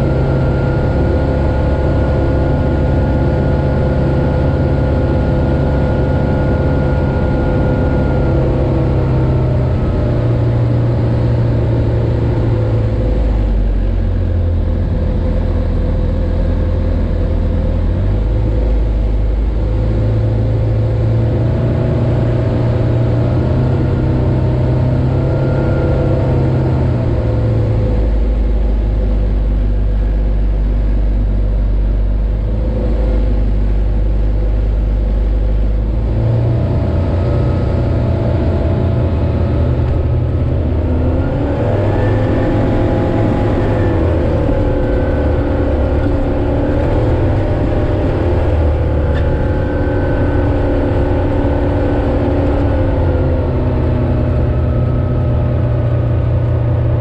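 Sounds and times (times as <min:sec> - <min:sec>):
light aircraft propeller engine: 0:00.0 - 0:57.0.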